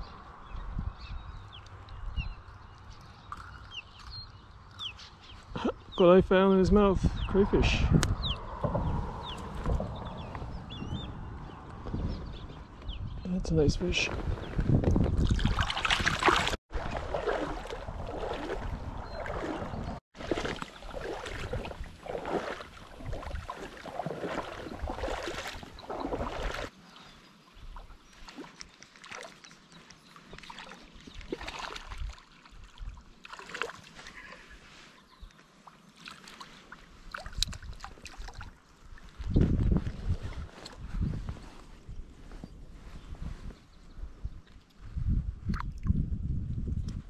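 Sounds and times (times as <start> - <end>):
river water splashing: 15.2 - 27.1, 27.8 - 39.1.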